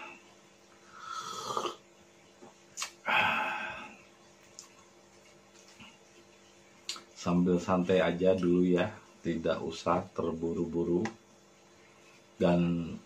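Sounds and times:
man slurping coffee: 1.0s - 1.8s.

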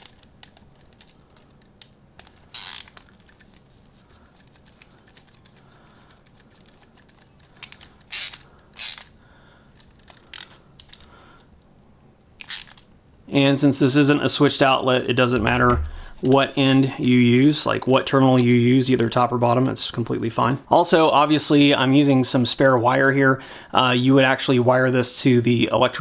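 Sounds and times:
ratcheting screwdriver clicking: 0.0s - 9.2s, 9.8s - 11.1s, 12.4s - 12.9s.

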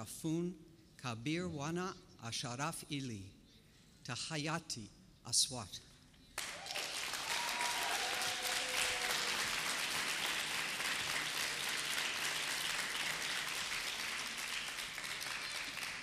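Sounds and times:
audience applauding: 6.4s - 16.0s.

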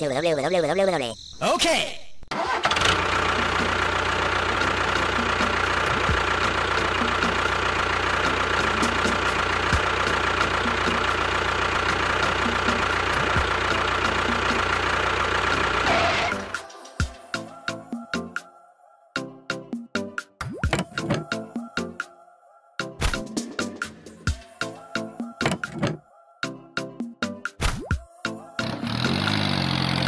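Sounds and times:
tractor engine running: 2.3s - 16.6s, 28.6s - 30.0s.

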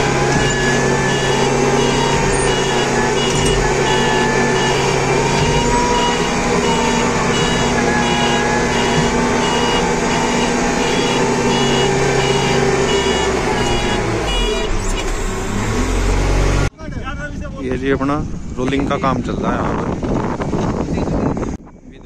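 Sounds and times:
high warning beeper: 0.0s - 14.8s
diesel engine running: 0.0s - 21.6s.

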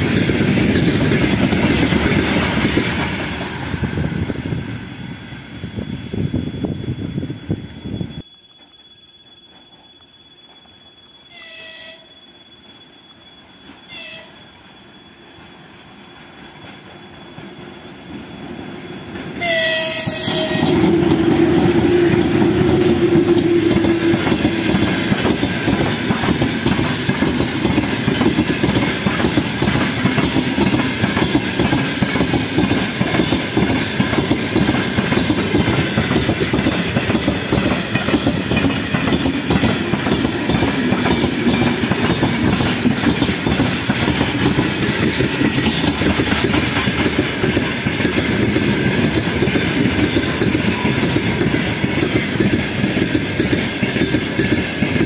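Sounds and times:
train wheels clattering on rails: 0.0s - 4.8s, 18.4s - 55.0s
locomotive horn blast: 11.3s - 12.1s, 13.9s - 14.4s, 19.4s - 20.8s
locomotive passing with rumble: 20.5s - 55.0s.

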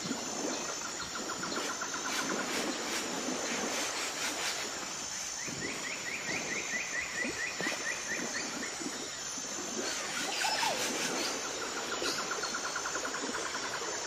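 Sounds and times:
wind hiss: 0.0s - 14.0s.

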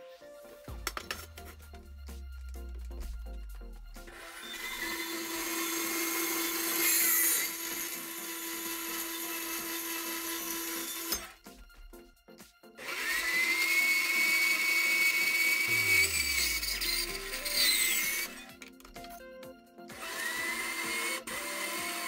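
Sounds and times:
band saw cutting steel: 0.8s - 11.6s, 12.8s - 19.2s, 19.9s - 22.0s
band saw rising whine: 1.2s - 11.5s, 12.8s - 18.5s.

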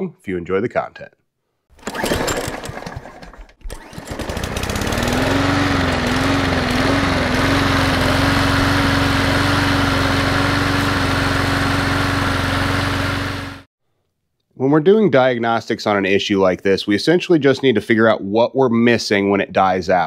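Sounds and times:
riding mower engine starting: 1.8s - 13.7s.

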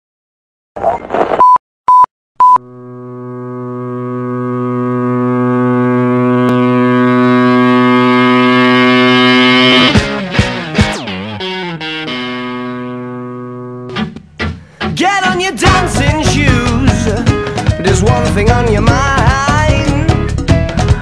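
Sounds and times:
short electronic beeps: 1.4s - 2.6s
steady drone rich in overtones: 2.6s - 14.2s
distorted guitar music: 2.6s - 21.0s.

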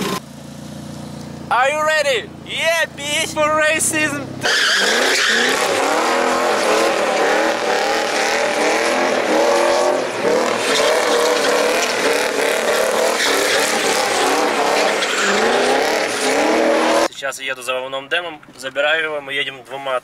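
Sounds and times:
car engines revving: 0.0s - 17.1s
tyre squeal: 4.4s - 17.1s.

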